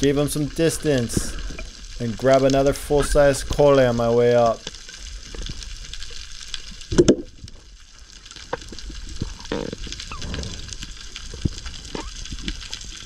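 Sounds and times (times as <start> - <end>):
underwater thump: 6.9 - 7.3.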